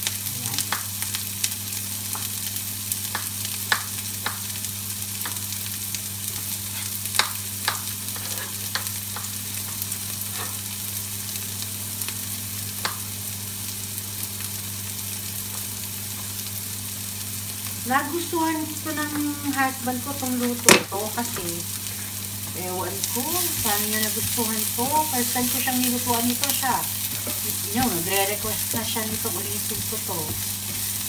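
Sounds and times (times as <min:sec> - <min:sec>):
food sizzling in hot oil: 0:00.0 - 0:31.0.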